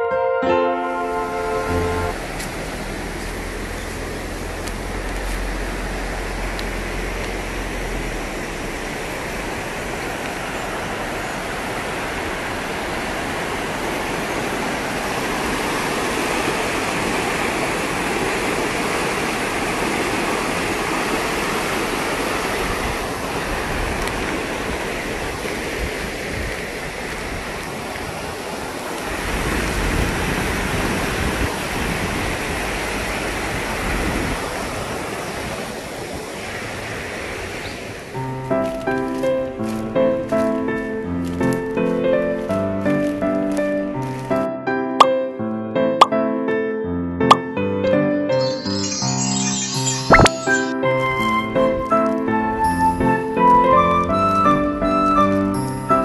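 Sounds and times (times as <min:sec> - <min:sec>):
river water rushing over rocks: 0:00.9 - 0:43.2.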